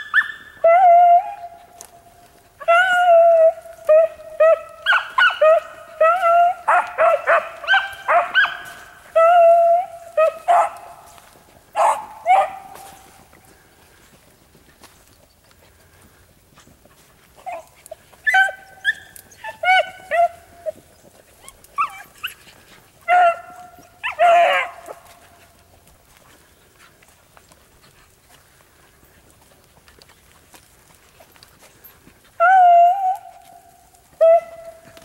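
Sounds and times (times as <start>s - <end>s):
hound baying: 0.0s - 13.2s, 17.4s - 25.8s, 31.7s - 35.0s
hounds yelping and barking: 0.0s - 13.4s, 17.0s - 26.9s, 31.2s - 35.0s.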